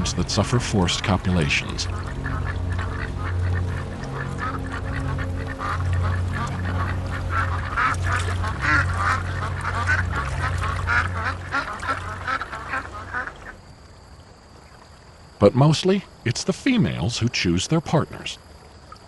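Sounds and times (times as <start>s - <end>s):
ducks calling: 0.0s - 13.6s
steady low hum: 0.0s - 15.3s.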